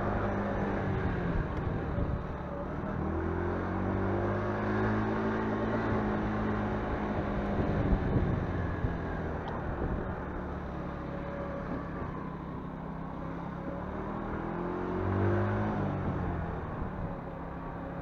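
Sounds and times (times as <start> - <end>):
road and wind noise: 0.0 - 18.0.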